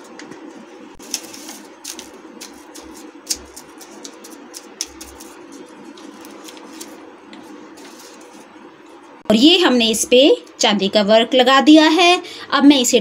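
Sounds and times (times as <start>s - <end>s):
steady low hum: 0.0s - 13.0s
paper rustling: 1.0s - 8.6s.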